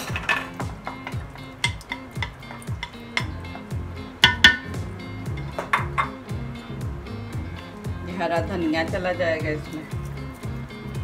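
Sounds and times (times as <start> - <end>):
bowl clinking against steel pot: 0.0 - 6.2
music with deep beat: 0.0 - 11.0.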